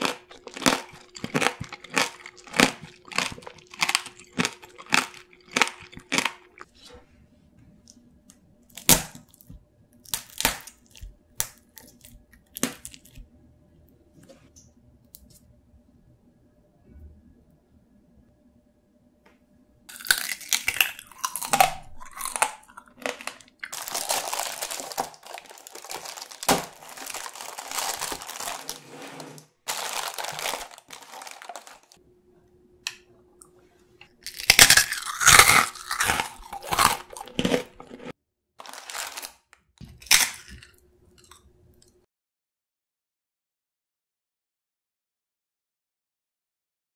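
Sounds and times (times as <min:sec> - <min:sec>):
sharp crunches of toffee bites: 0:00.0 - 0:06.6, 0:08.7 - 0:13.2, 0:19.9 - 0:28.6, 0:34.2 - 0:40.7
crunching and chewing candy: 0:00.0 - 0:06.7, 0:08.7 - 0:13.3, 0:19.9 - 0:28.8, 0:29.7 - 0:32.0, 0:34.1 - 0:41.4.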